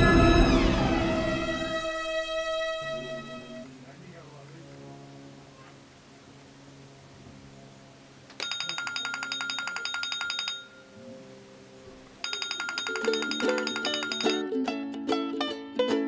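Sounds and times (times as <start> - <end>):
music: 0.0 - 3.7, 13.1 - 16.0
phone alarm beeping: 8.4 - 11.0, 12.2 - 14.4.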